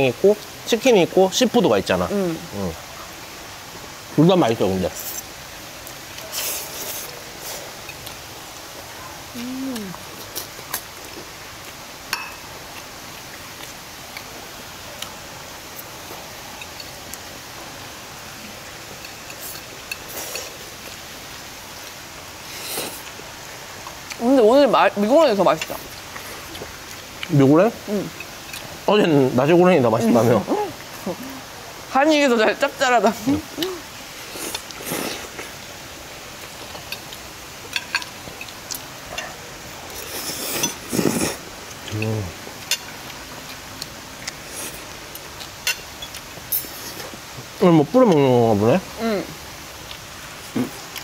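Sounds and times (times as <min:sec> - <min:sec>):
steady background hiss: 0:00.0 - 0:51.0
eating noises: 0:05.0 - 0:17.4, 0:18.4 - 0:21.1, 0:21.7 - 0:24.3, 0:25.5 - 0:29.3, 0:33.2 - 0:48.4, 0:49.2 - 0:51.0
cutlery clinking on ceramic plates: 0:12.1 - 0:12.4.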